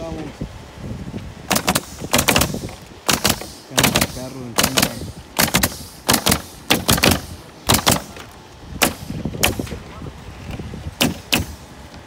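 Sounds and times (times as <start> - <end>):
nail guns firing: 1.5 - 9.8, 11.0 - 11.7.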